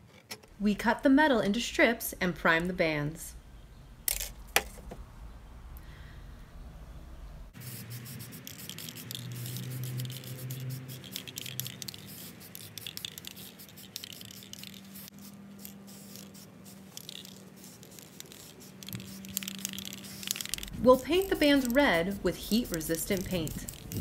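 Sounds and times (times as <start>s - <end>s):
spray can hissing in bursts: 7.6s - 24.0s.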